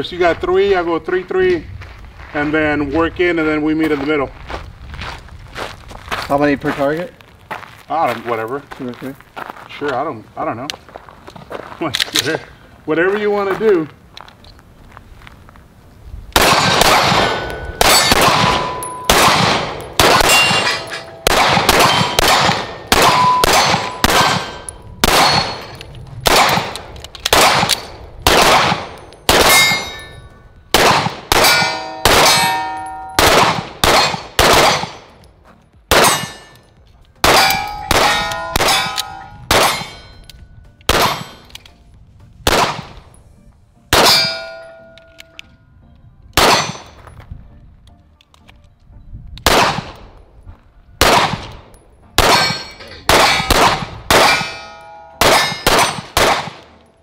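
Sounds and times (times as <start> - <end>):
pistol shots: 16.4 - 30.1, 30.7 - 35.2, 35.9 - 36.6, 37.2 - 40.2, 40.8 - 41.6, 42.4 - 43.1, 43.9 - 44.8, 46.4 - 47.0, 49.4 - 50.1, 51.0 - 56.8
steel plate clanging: 17.3 - 25.8, 29.5 - 30.2, 31.4 - 33.2, 37.4 - 40.3, 54.2 - 56.0.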